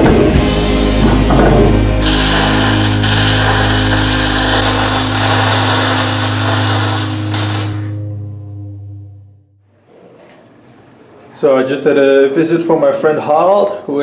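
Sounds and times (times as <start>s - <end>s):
arc welding crackling and hissing: 2.0s - 8.0s.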